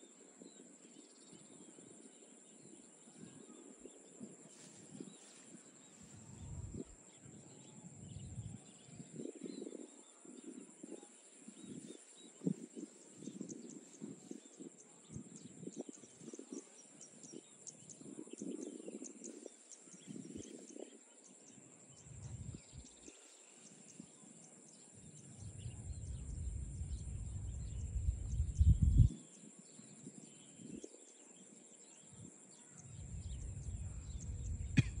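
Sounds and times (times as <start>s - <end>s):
low rumble: 25.4s - 29.1s, 33.0s - 35.0s.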